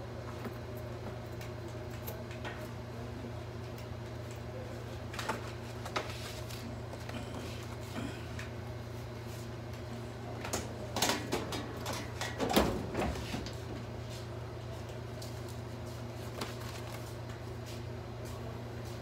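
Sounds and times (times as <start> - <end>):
steady low hum: 0.0 - 19.0
file folders being handled: 5.0 - 8.1, 14.9 - 17.8.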